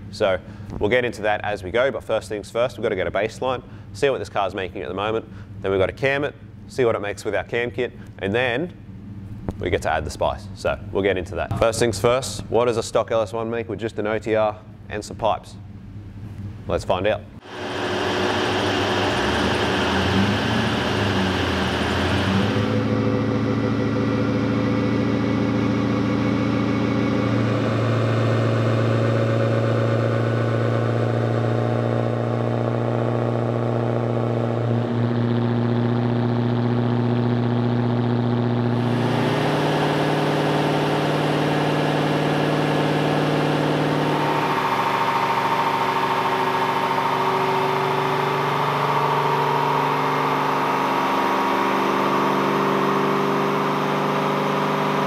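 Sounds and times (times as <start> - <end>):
engine revving on dyno: 17.4 - 55.0.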